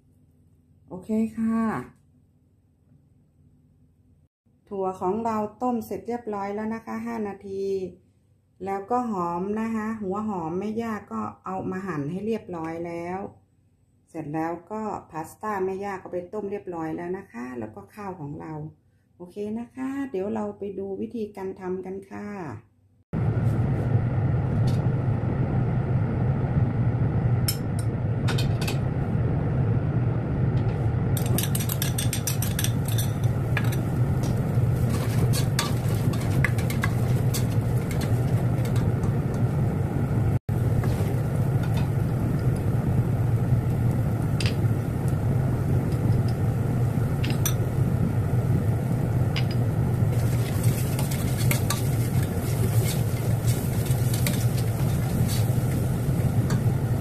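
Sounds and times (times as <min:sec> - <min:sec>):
low hum: 0:23.2 - 0:57.0
spoon scraping pot: 0:31.2 - 0:39.1, 0:50.1 - 0:56.7
onions sizzling in oil: 0:40.5 - 0:57.0.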